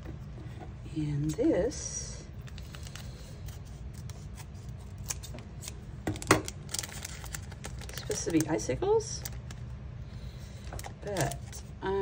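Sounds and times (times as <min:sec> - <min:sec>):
plastic packaging crackling: 0:02.4 - 0:03.6, 0:04.8 - 0:09.8, 0:10.5 - 0:11.7.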